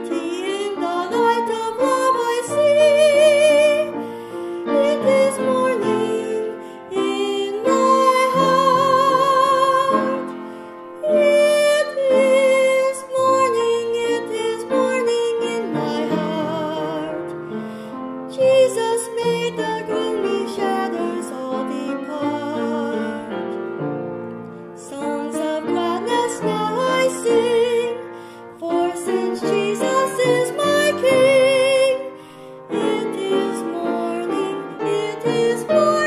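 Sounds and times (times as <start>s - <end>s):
woman singing gospel: 0.0s - 3.9s, 4.7s - 10.3s, 11.0s - 17.1s, 28.6s - 32.1s, 32.7s - 36.0s
piano accompaniment: 0.0s - 36.0s.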